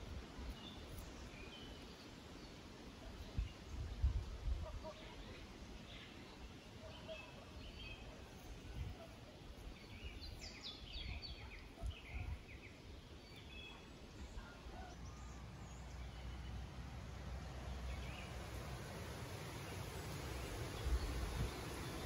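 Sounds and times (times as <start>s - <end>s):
small birds chirping: 4.8s - 22.0s
low background rumble: 13.2s - 22.0s.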